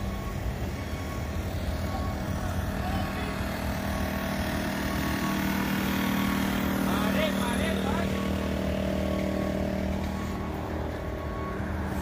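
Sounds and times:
motor running: 0.0 - 12.0.

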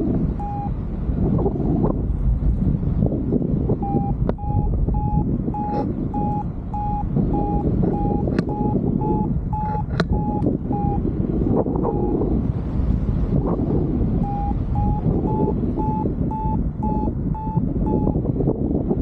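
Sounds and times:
variometer beeping: 0.0 - 2.0, 3.5 - 19.0
wind rush on microphone: 0.0 - 19.0
sharp clicks: 9.6 - 10.5.

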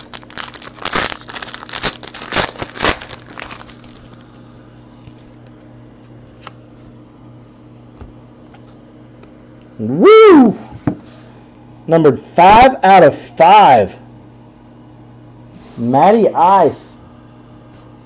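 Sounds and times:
foil wrapper tearing and crinkling: 0.0 - 4.3
faint steady hum: 0.0 - 18.0.

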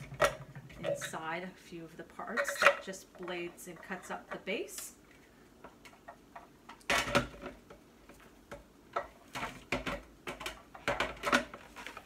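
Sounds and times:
plastic parts clicking and knocking: 5.6 - 12.0.

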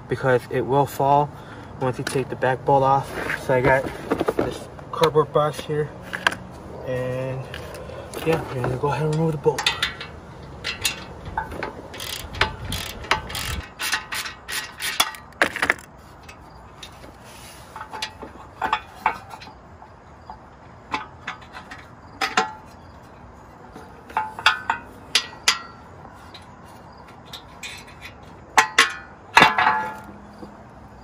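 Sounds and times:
socket ratchet clicking: 11.9 - 14.2.

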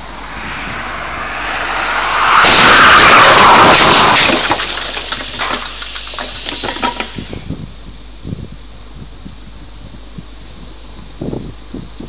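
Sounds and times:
car crash: 0.0 - 7.2
debris clicks and rattles: 2.5 - 7.2.

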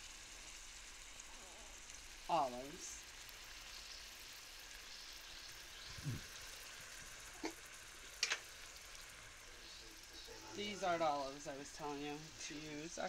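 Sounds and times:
food sizzling in a pot: 0.0 - 13.0
utensil clicking on pot: 8.2 - 8.5.

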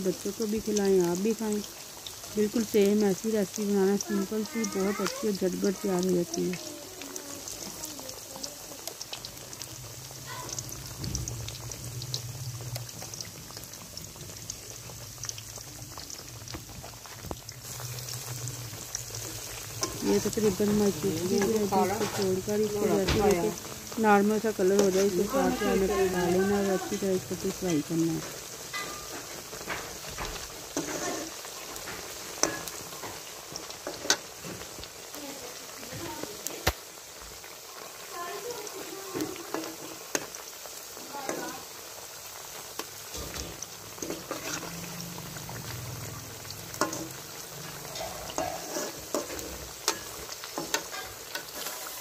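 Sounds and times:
potato slices sizzling in hot oil: 0.0 - 52.0
small crackling pops: 29.2 - 41.8, 46.7 - 52.0
metal spoon stirring: 30.7 - 33.0, 44.0 - 44.9, 46.7 - 52.0.

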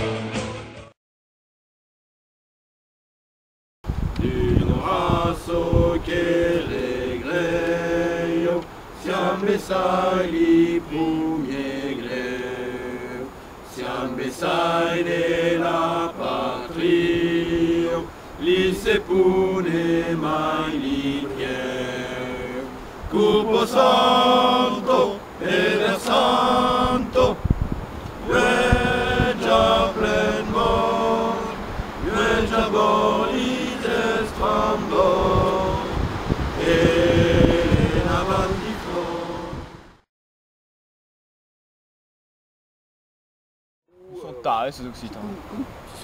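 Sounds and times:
men singing together: 4.2 - 27.5, 28.2 - 39.8.

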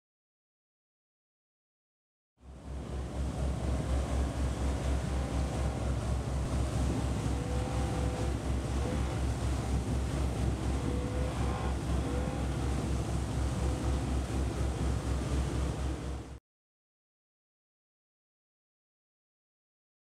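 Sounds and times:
low pulsing: 2.4 - 16.4
outboard engine: 2.4 - 16.4
water rushing and splashing: 2.7 - 16.4.

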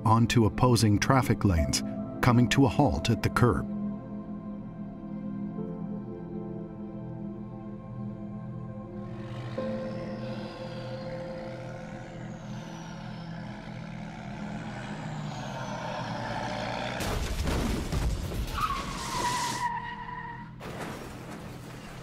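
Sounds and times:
vehicle crash and skidding: 15.5 - 22.0
tyre squeal: 18.4 - 20.6.

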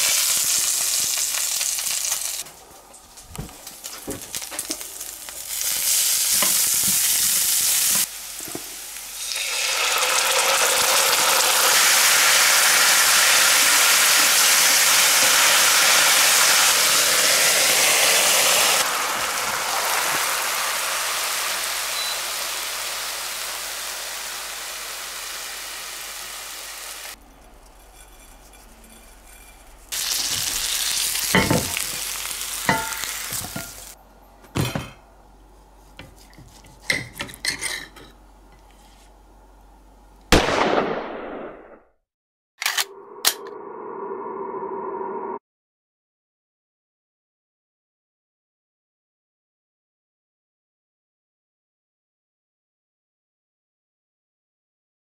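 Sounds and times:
marinade sizzling in a frying pan: 0.0 - 2.4, 3.7 - 27.2, 29.9 - 34.0.

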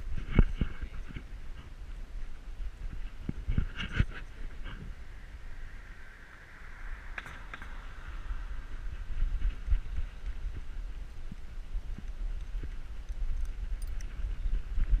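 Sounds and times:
camera rumbling and rubbing: 0.0 - 5.5, 7.0 - 15.0
car driving past: 4.9 - 9.2.

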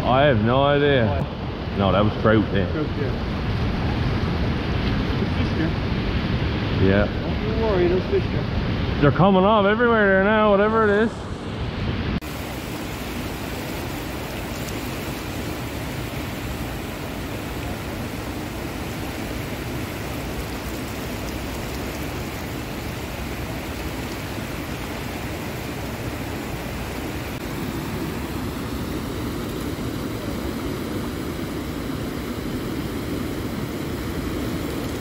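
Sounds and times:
river rushing over rocks: 12.2 - 35.0.

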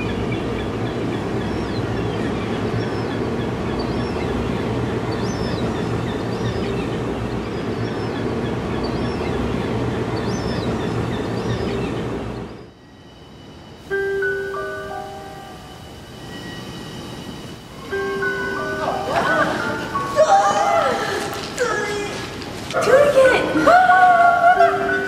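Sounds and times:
dense rumble with held tones: 0.0 - 12.8.

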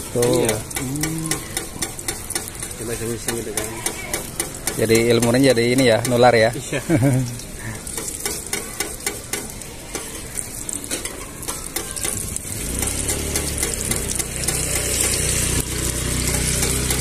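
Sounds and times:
food sizzling on a griddle: 0.0 - 17.0
metal spatulas scraping griddle: 0.2 - 5.1, 7.8 - 15.5.

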